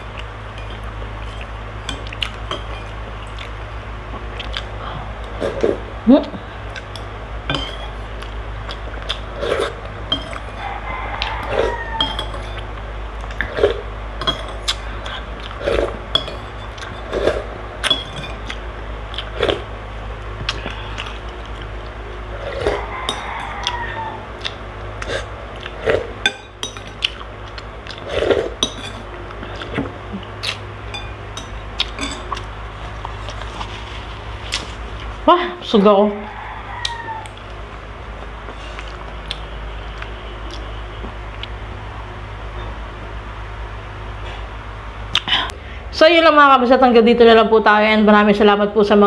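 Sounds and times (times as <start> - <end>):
eating and sipping: 0.0 - 35.2, 38.2 - 41.6
spoon scraping glass bowl: 0.5 - 3.0, 7.5 - 8.0, 9.4 - 10.7, 11.3 - 12.7, 13.4 - 14.8, 15.5 - 18.6, 22.4 - 23.6, 25.0 - 27.2, 28.0 - 29.8, 30.4 - 32.5.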